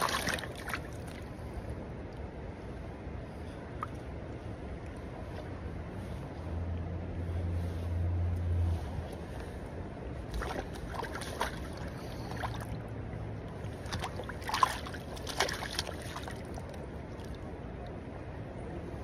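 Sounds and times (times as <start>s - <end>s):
splashes and knocks in water: 0.0s - 1.2s, 10.3s - 12.8s, 13.7s - 17.4s
shallow river rushing: 13.6s - 17.4s.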